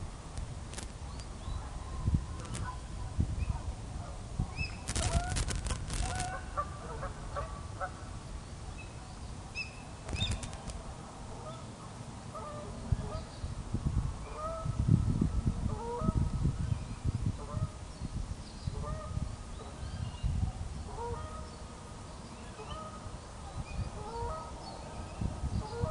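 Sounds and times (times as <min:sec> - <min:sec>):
low wind rumble: 0:00.0 - 0:25.9
sharp clicks: 0:04.8 - 0:06.3, 0:10.1 - 0:10.8
geese honking: 0:24.0 - 0:24.5.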